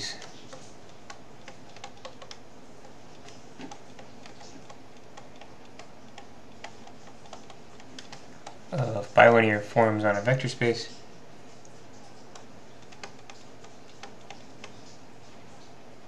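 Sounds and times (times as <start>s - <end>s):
stylus tapping on tablet: 0.1s - 8.6s.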